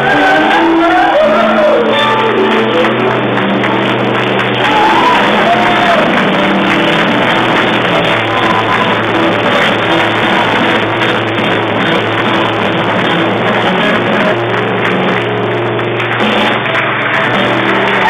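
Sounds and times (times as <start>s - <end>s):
live rock band playing: 0.0s - 18.0s.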